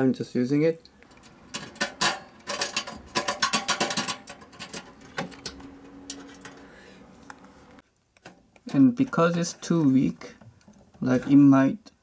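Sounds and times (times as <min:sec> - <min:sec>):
small metal parts clicking: 0:01.0 - 0:06.6.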